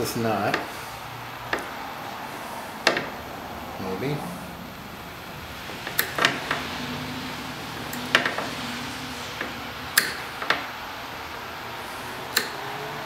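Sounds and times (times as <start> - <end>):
cutters clicking and snapping: 12.2 - 12.8.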